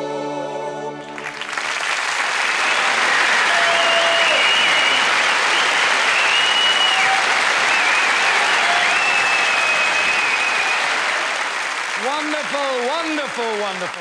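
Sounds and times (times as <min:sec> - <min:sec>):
audience applauding: 0:01.0 - 0:14.0
high whistles: 0:02.5 - 0:11.4.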